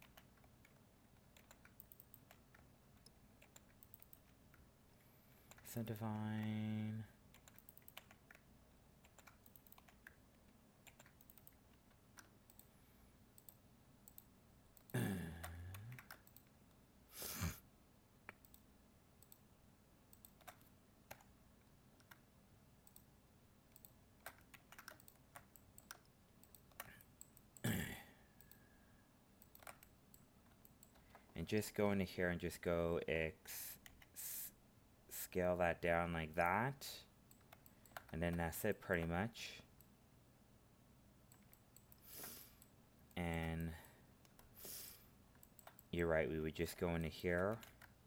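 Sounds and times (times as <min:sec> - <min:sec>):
mouse and keyboard clicks: 0:07.3 - 0:12.7, 0:20.1 - 0:23.1, 0:23.7 - 0:27.6, 0:29.4 - 0:31.4.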